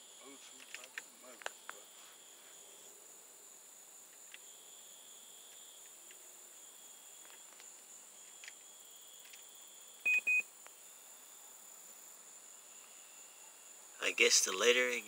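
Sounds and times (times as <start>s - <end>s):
crickets chirring: 0.0s - 15.0s
short electronic beeps: 10.1s - 10.4s.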